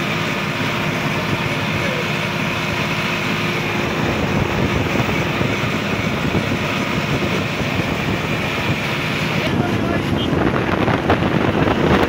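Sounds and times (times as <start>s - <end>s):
road and wind noise: 0.0s - 12.0s
tractor diesel engine running: 0.0s - 12.0s.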